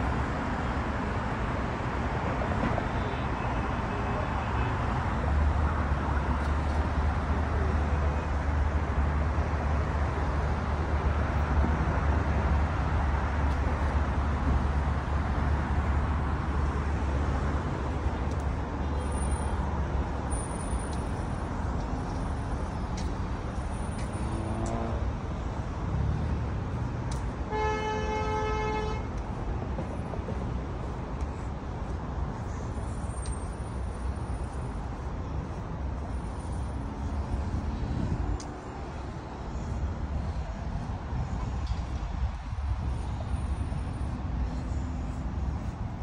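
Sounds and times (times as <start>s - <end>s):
highway traffic rumble: 0.0s - 46.0s
car horn: 27.5s - 29.1s.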